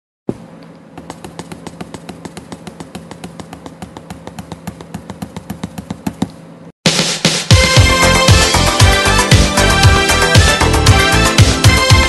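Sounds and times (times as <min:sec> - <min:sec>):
steady low hum: 0:00.3 - 0:06.8.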